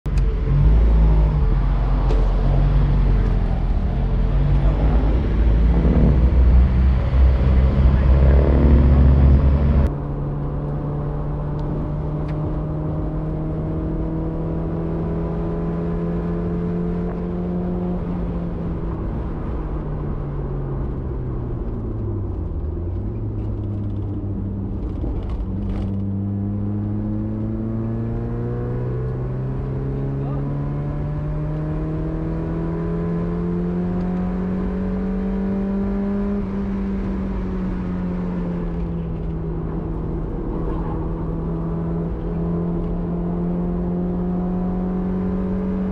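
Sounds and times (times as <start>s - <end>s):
loud low rumble: 0.1s - 15.0s, 37.3s - 44.6s
car engine revving under load: 0.1s - 45.9s.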